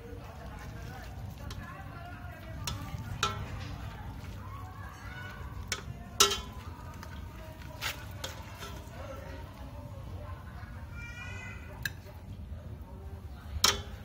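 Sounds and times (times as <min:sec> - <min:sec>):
metal utensils clinking on pot: 0:00.3 - 0:09.6, 0:13.5 - 0:14.0.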